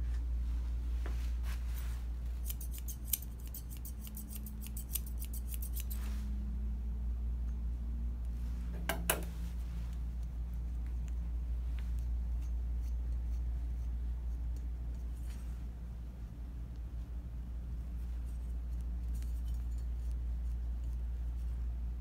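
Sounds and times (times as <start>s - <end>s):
low steady hum: 0.0s - 22.0s
shears snipping fur: 2.3s - 6.1s.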